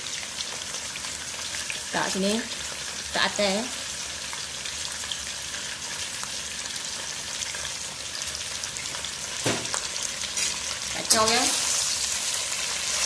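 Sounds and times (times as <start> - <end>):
chicken sizzling in hot oil: 0.0 - 13.0
brief knock: 9.4 - 9.7.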